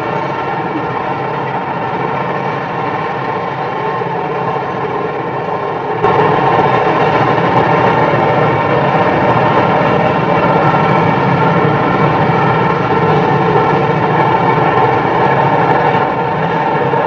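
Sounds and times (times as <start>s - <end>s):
train rolling over steel bridge: 0.0s - 17.0s.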